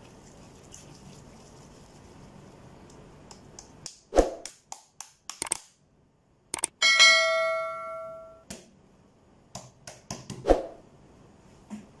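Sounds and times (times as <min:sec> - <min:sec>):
mouse clicks: 0:05.3 - 0:05.6, 0:06.5 - 0:06.7
bright bell ding: 0:06.8 - 0:08.4.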